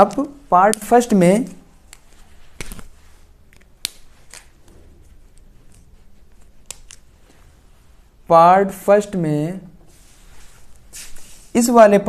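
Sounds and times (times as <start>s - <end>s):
marker clicks and taps: 0.0s - 1.0s
faint low room hum: 0.0s - 12.0s.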